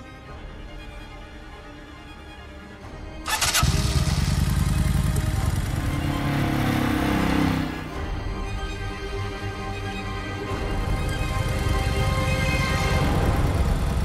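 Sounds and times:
motorcycle engine starting and revving: 0:03.3 - 0:08.0, 0:10.6 - 0:14.0.

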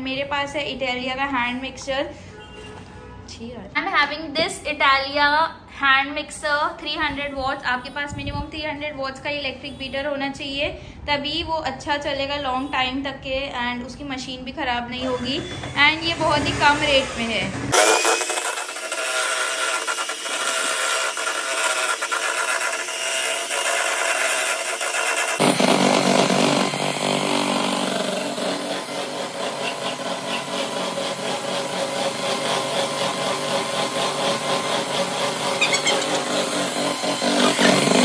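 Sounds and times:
electric hand mixer whipping cream: 0:15.0 - 0:38.0.

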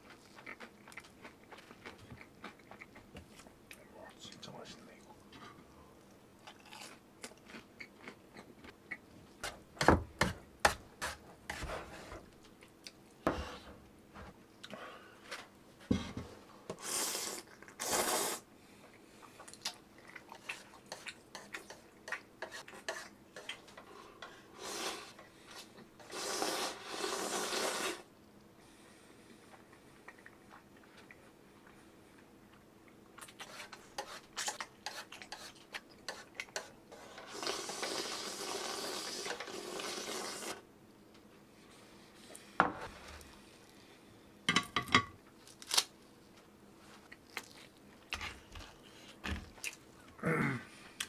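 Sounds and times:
crunchy chewing: 0:00.0 - 0:03.8, 0:06.4 - 0:09.0, 0:47.0 - 0:49.8.

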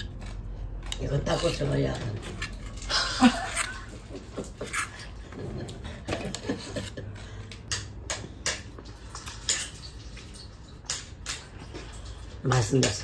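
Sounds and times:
kitchenware clicks and taps: 0:03.6 - 0:12.2.

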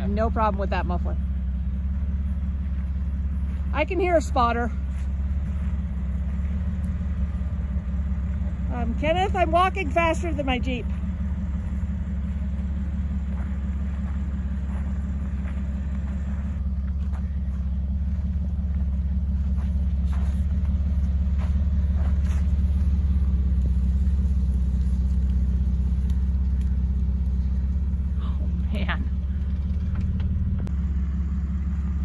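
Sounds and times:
car engine low rumble: 0:00.0 - 0:32.0.

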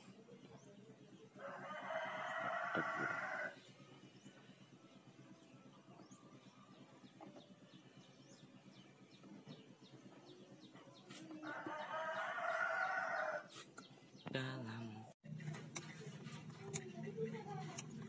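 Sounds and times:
rooster crowing: 0:01.4 - 0:03.6, 0:11.4 - 0:13.5.

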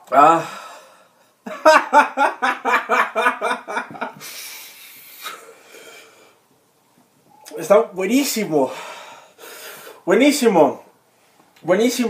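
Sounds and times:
man laughing: 0:01.5 - 0:04.3.

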